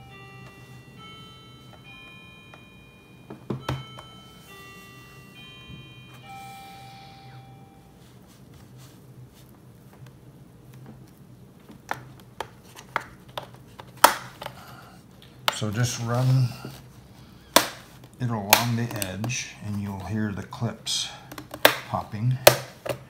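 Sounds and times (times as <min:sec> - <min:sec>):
faint tune of held notes: 0:00.0 - 0:09.0.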